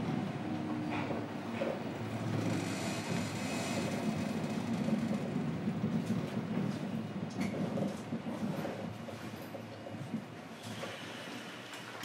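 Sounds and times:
train wheels rumbling on rails: 0:00.0 - 0:11.8.

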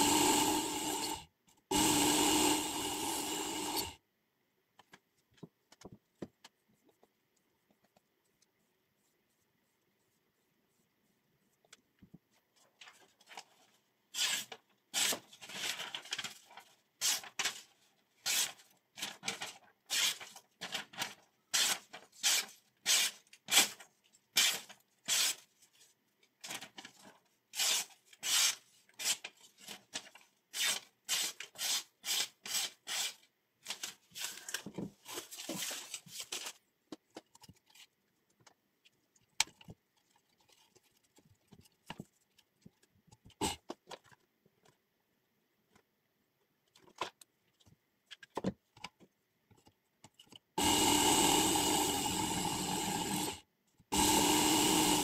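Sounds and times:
faint handling sounds: 0:04.7 - 0:14.8, 0:33.6 - 0:50.6
knife slicing paper: 0:17.0 - 0:20.8, 0:21.5 - 0:23.8, 0:27.5 - 0:29.3, 0:30.5 - 0:34.4.

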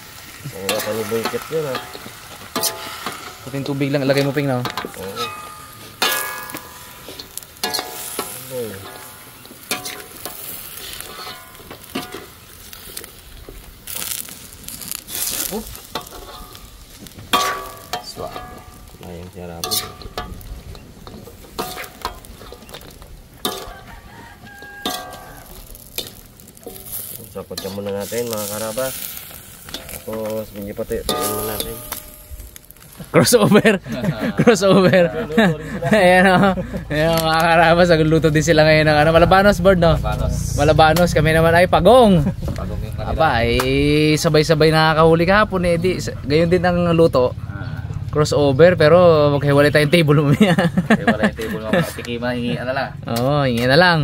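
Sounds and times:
food sizzling in a frying pan: 0:00.0 - 0:46.1
utensil scraping and knocking pan: 0:00.7 - 0:12.4, 0:15.8 - 0:28.7, 0:29.4 - 0:32.5.

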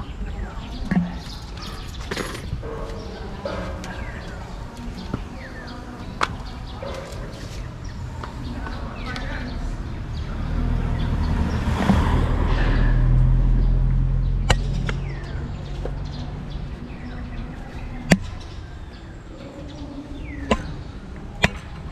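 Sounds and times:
vehicle engine hum passing: 0:07.7 - 0:18.7.

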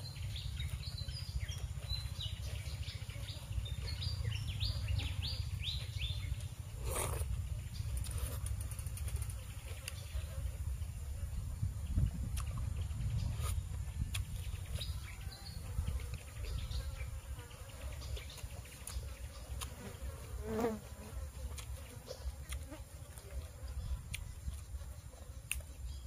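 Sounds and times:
steady low rumble: 0:10.6 - 0:16.7
flies buzzing: 0:15.5 - 0:26.0.

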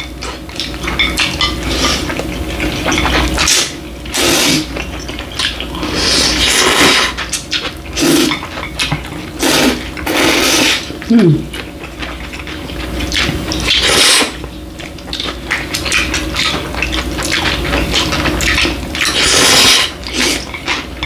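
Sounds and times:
chewing: 0:00.0 - 0:21.0
people slurping noodles: 0:03.4 - 0:04.7, 0:05.8 - 0:07.3, 0:08.0 - 0:08.4, 0:09.4 - 0:11.6, 0:13.2 - 0:14.4, 0:19.1 - 0:20.5.

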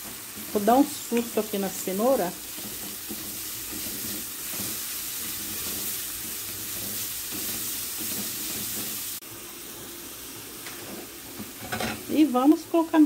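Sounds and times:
wooden spoon stirring: 0:00.0 - 0:09.1
vegetables sizzling in oil: 0:00.0 - 0:13.0.

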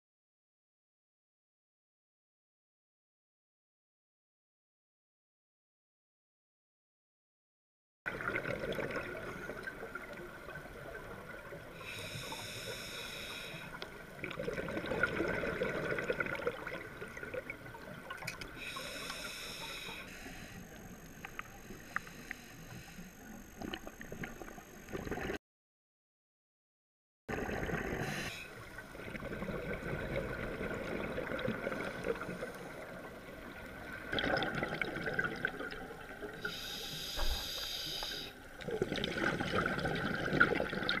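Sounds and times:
underwater water noise: 0:08.1 - 0:25.4, 0:27.3 - 0:41.0
regulator breathing underwater: 0:11.8 - 0:13.8, 0:18.5 - 0:24.0, 0:27.4 - 0:28.7, 0:36.3 - 0:38.5
exhaust bubbles: 0:34.0 - 0:36.4, 0:38.6 - 0:41.0.

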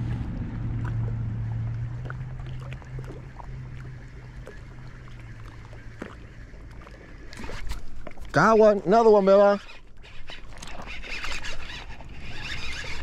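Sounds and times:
motor humming: 0:00.0 - 0:13.0.

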